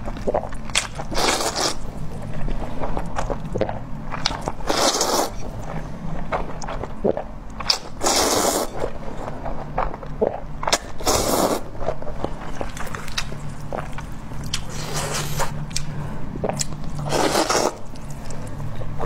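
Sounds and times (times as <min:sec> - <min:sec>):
person slurping noodles: 0:01.1 - 0:01.8, 0:04.6 - 0:05.4, 0:07.8 - 0:08.8, 0:10.2 - 0:11.7, 0:17.0 - 0:17.9.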